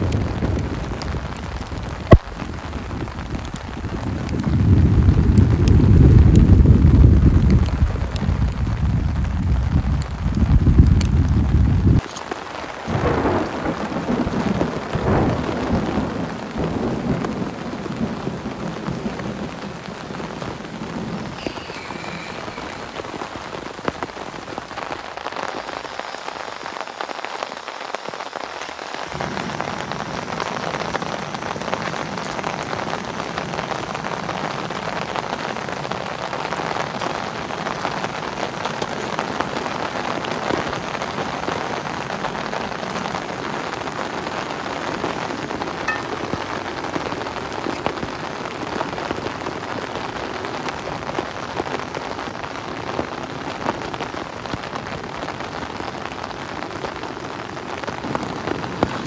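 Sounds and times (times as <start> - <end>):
rolling thunder: 0.0 - 12.0, 12.8 - 25.0
rain falling on a tarp: 0.0 - 59.0.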